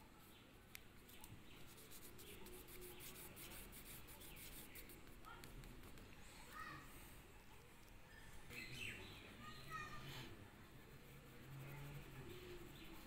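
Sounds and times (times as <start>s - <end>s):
pastel scratching on paper: 1.1s - 6.2s, 9.9s - 13.0s.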